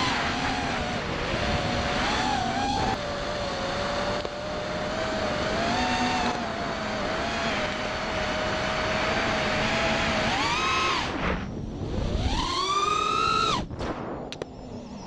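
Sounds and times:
drone motors whining: 0:00.0 - 0:15.0
rush of air: 0:13.5 - 0:14.6.

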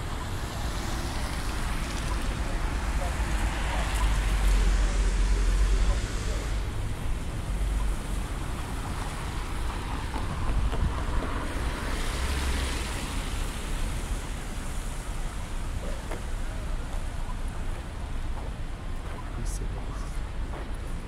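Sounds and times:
low traffic rumble: 0:00.0 - 0:21.0
car passing on wet road: 0:10.9 - 0:16.4.

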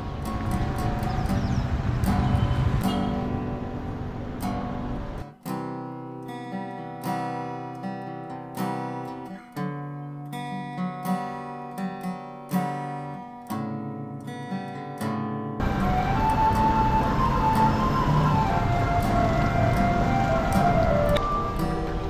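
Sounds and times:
strummed acoustic guitar: 0:00.0 - 0:22.0
steady rushing noise: 0:15.6 - 0:22.0.

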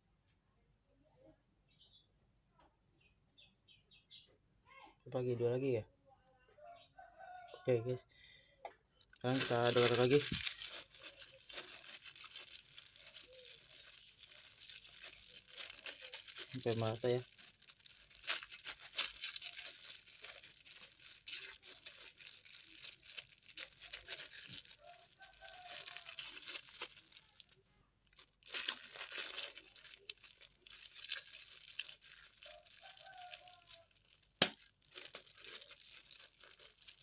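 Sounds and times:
plastic bag crinkling: 0:09.0 - 0:37.0.

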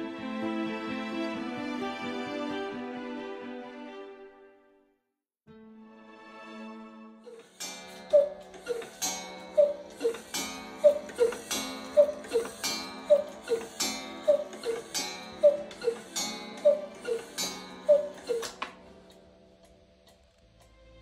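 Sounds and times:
cuckoo clock call: 0:07.3 - 0:19.1
sharp ringing clock strike: 0:07.5 - 0:19.8.

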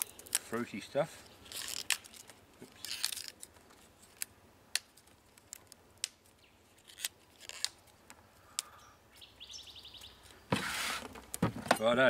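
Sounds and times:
leaves rustling: 0:00.0 - 0:12.0
leaves snapping off: 0:01.4 - 0:08.7.

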